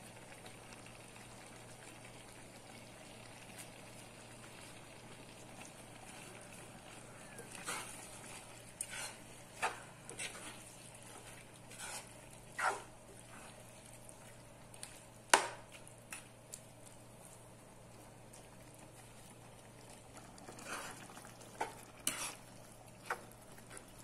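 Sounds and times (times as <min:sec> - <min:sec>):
cooking hiss: 0:00.0 - 0:24.0
metal spatula scraping a pan: 0:07.4 - 0:12.9, 0:21.6 - 0:22.5.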